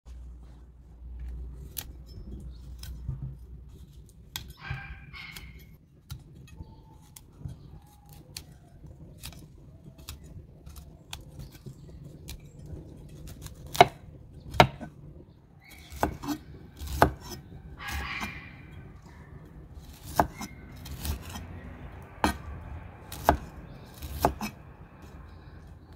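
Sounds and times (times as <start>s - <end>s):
knife cutting broccoli: 13.0s - 14.9s, 15.6s - 18.6s, 19.8s - 24.6s.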